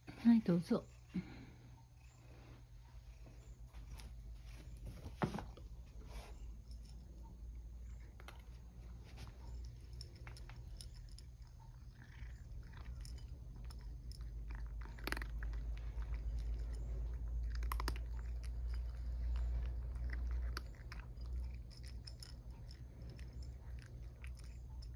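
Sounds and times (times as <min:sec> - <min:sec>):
cat crunching dry kibble: 0:09.8 - 0:24.9.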